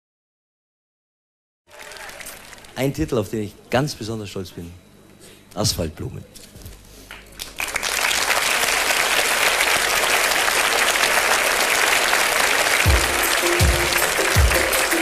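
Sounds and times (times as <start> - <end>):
audience applauding: 1.7 - 3.0, 7.1 - 15.0
bass beat: 12.8 - 15.0.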